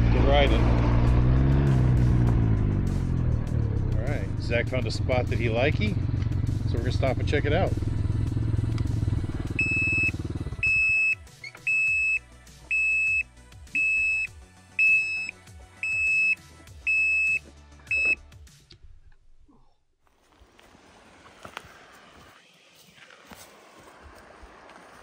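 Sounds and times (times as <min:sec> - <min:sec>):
engine idling: 0:02.6 - 0:12.8
high electronic beeps: 0:09.6 - 0:13.2, 0:13.8 - 0:18.2.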